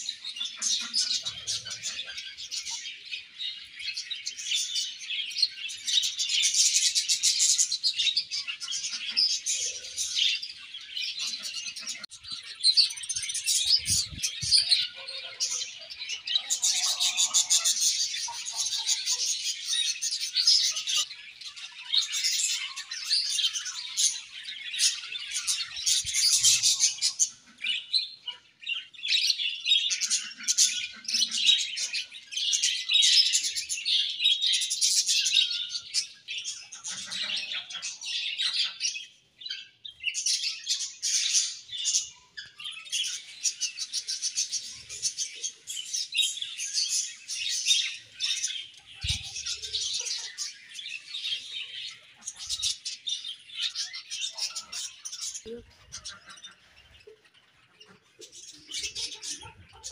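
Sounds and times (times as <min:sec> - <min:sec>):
budgerigars chirping and warbling: 0:00.0 - 0:59.9.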